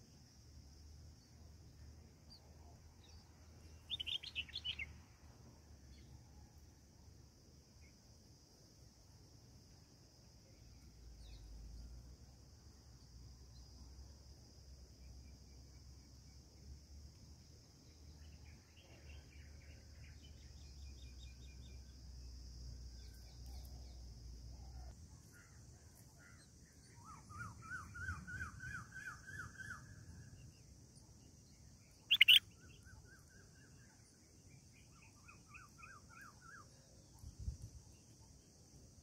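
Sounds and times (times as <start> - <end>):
nestlings begging chirps: 32.1 - 32.4.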